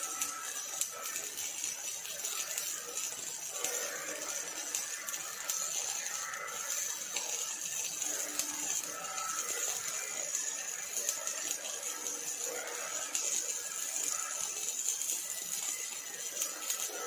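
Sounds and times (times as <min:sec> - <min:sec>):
arc welding crackling sizzle: 0:00.0 - 0:17.0.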